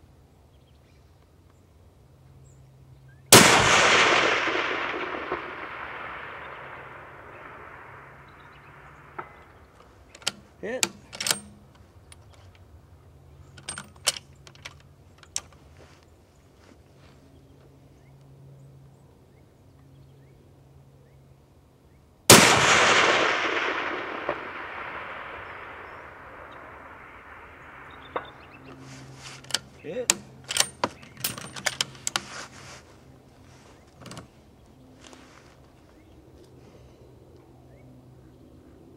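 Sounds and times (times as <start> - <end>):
rifle shot with echo: 3.3 - 10.4, 22.3 - 29.2
sharp clicks: 3.4 - 12.6.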